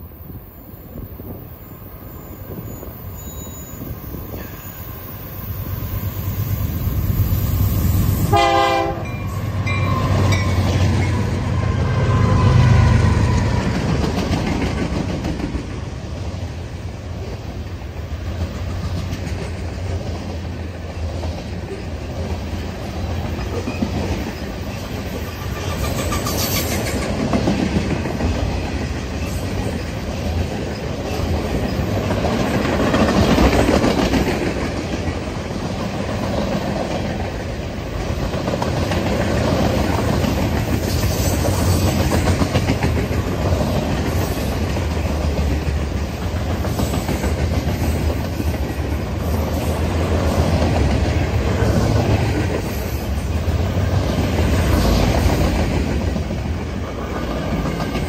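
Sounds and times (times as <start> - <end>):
diesel locomotives rumbling: 0.0 - 58.0
train horn blast: 8.2 - 10.4.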